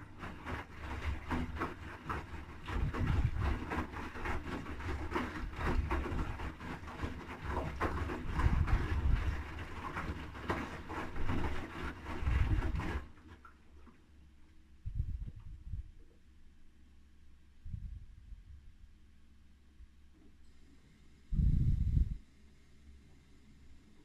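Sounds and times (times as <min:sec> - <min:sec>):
laundry splashing and thudding: 0:00.0 - 0:14.0.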